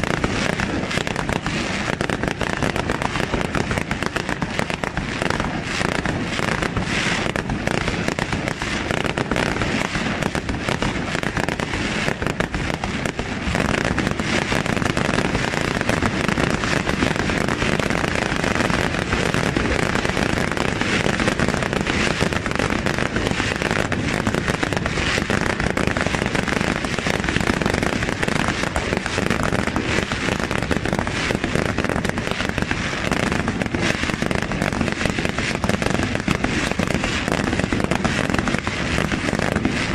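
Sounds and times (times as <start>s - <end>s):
fireworks bursting and crackling: 0.0s - 39.9s.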